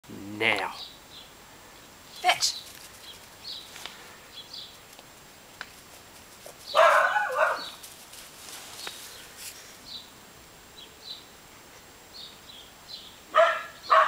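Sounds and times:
puppy barking: 6.7s - 7.8s, 13.3s - 14.0s.

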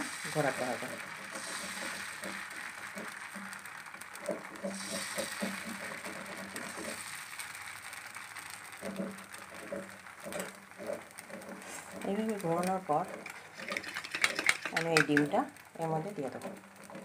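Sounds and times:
ladle scraping pan: 13.1s - 15.3s.

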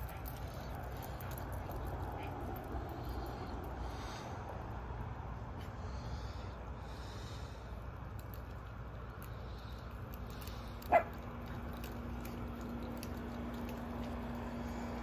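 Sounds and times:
low background rumble: 0.0s - 15.0s
dog barking: 10.9s - 11.2s.

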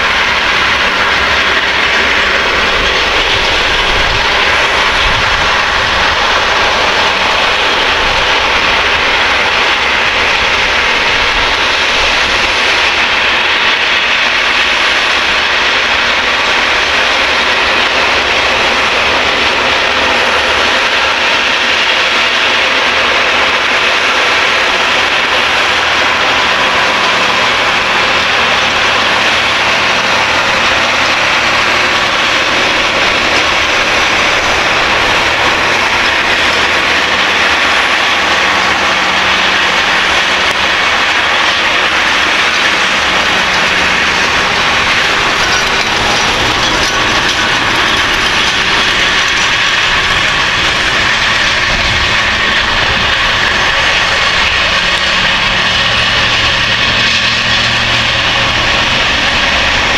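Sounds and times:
continuous wash of noise: 0.0s - 59.9s
tractor engine running: 0.0s - 59.9s.

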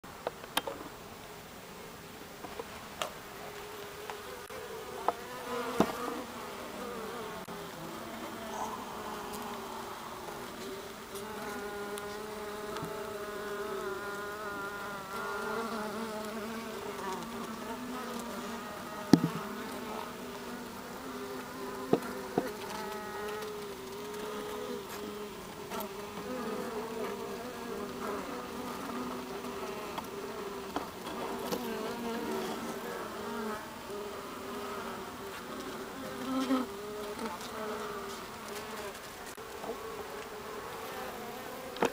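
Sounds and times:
bees buzzing: 3.4s - 41.9s
sharp knocks: 19.1s - 19.4s.

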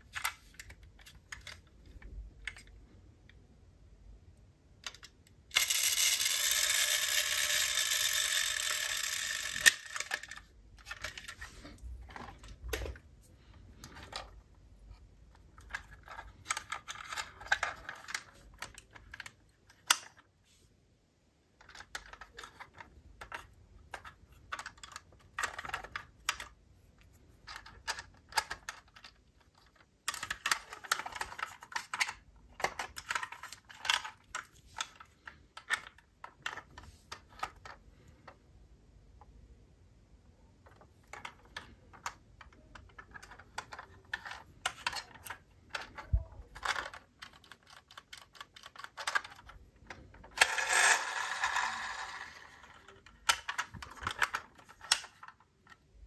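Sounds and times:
toy cars clicking and clattering: 4.8s - 11.4s, 15.4s - 20.3s, 21.6s - 26.6s, 27.4s - 37.8s, 40.7s - 56.0s.

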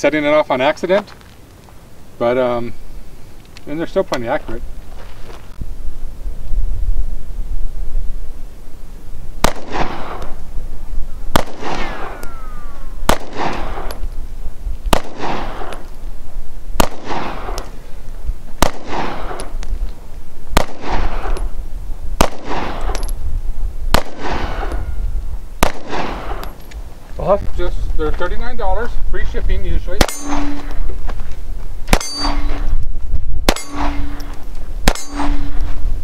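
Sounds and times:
pistol shots with echo: 9.4s - 10.4s, 11.3s - 14.0s, 14.9s - 15.8s, 16.8s - 17.8s, 18.6s - 19.6s, 20.5s - 21.5s, 22.2s - 23.1s, 23.9s - 25.0s, 25.6s - 26.6s, 30.0s - 30.8s, 31.9s - 32.7s, 33.5s - 35.6s.

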